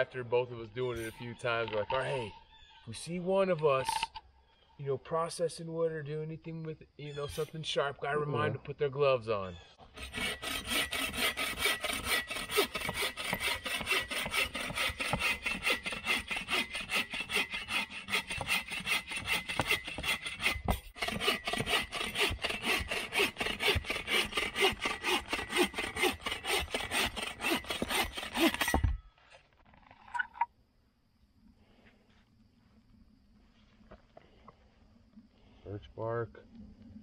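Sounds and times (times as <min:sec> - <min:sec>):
hand saw cutting log: 0:09.9 - 0:29.0.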